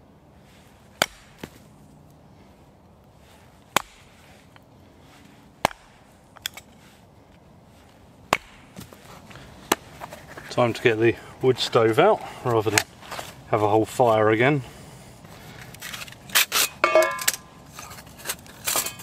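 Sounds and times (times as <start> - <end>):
axe chopping wood: 1.0 - 1.6, 3.7 - 4.2, 5.6 - 6.6, 8.3 - 9.0, 9.6 - 9.9.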